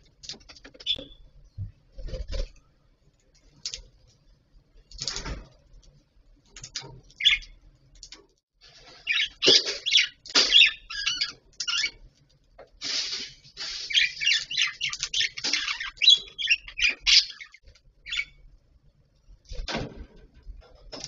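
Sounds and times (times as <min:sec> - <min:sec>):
budgerigars chirping: 0:07.2 - 0:07.6, 0:09.0 - 0:12.0, 0:13.9 - 0:18.4.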